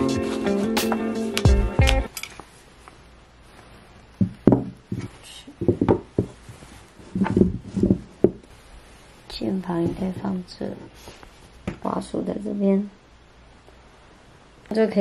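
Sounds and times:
background music: 0:00.0 - 0:02.1.

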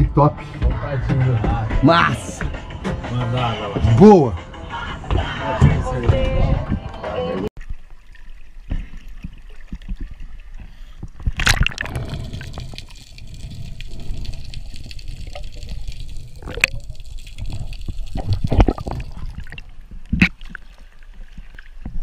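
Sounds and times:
water splashing and sloshing: 0:07.6 - 0:22.0
loud splash into water: 0:11.4 - 0:12.3.

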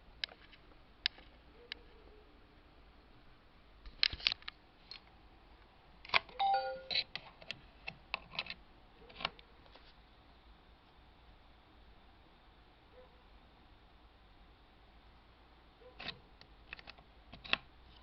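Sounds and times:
laptop electronic chime: 0:06.4 - 0:07.0.

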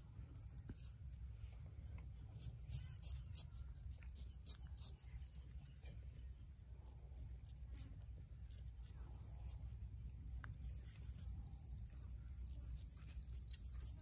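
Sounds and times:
low steady rumble: 0:00.0 - 0:14.0
razor scraping stubble: 0:02.3 - 0:05.9, 0:10.4 - 0:11.3.

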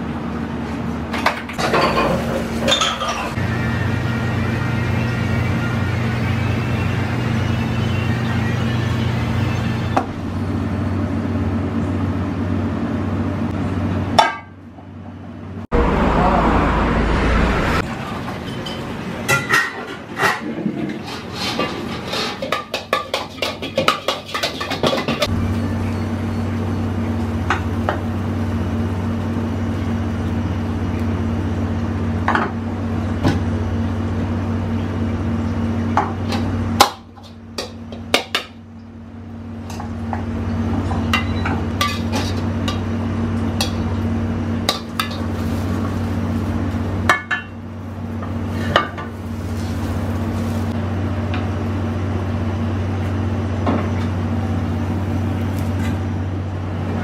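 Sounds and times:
low kitchen hum: 0:00.0 - 0:57.0
metal pans and utensil clanking: 0:01.2 - 0:03.4, 0:17.9 - 0:25.3, 0:36.0 - 0:38.6, 0:40.8 - 0:42.9, 0:43.6 - 0:43.9, 0:44.6 - 0:47.6, 0:48.2 - 0:50.7.

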